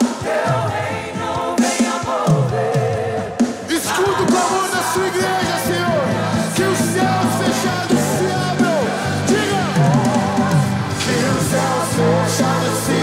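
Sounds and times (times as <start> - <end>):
drum kit beat: 0.0 - 13.0
people singing: 0.0 - 13.0
live rock band playing: 3.4 - 13.0.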